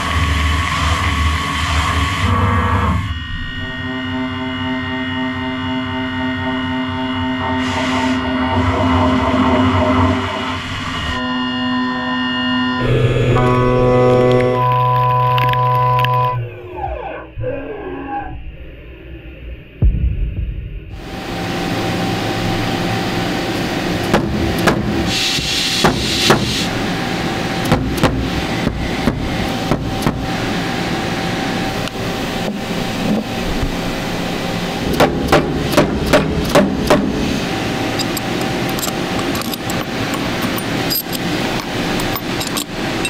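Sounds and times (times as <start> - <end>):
machine shop running noise: 0.0 - 17.2, 20.9 - 43.0
metal blocks clicking and knocking: 38.0 - 42.8.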